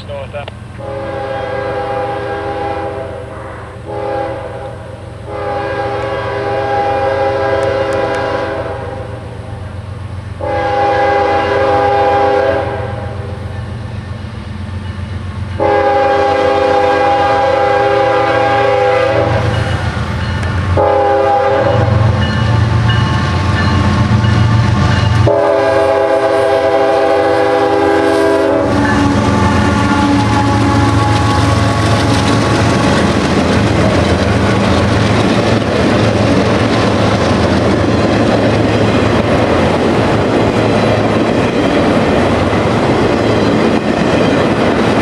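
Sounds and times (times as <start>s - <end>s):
train rumble: 0.0s - 45.0s
locomotive horn blasts: 0.8s - 9.2s, 10.4s - 13.4s, 15.6s - 19.7s, 20.7s - 22.4s, 25.2s - 32.1s.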